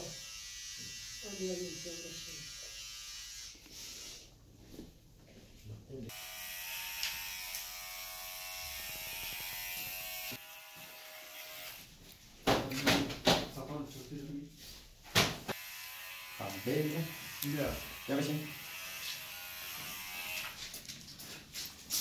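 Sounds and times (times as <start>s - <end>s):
electric hair clippers buzzing: 0.0s - 4.2s, 6.1s - 11.9s, 15.5s - 20.6s.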